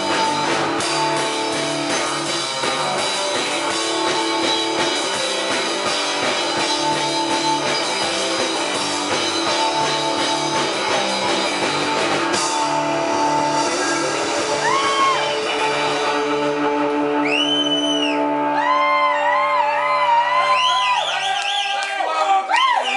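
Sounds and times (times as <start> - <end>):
drums and cymbals: 0.0 - 16.7
pulsing bass line: 0.0 - 19.3
electric guitar chords: 0.0 - 20.6.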